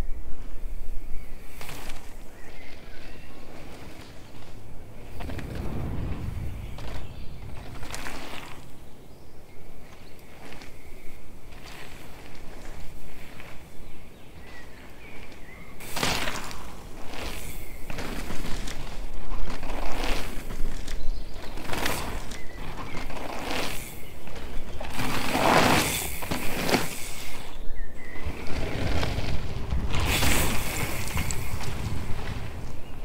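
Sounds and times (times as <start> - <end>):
bike tyres skidding on dirt: 1.3 - 33.0
wind rushing: 4.8 - 8.9, 28.3 - 33.0.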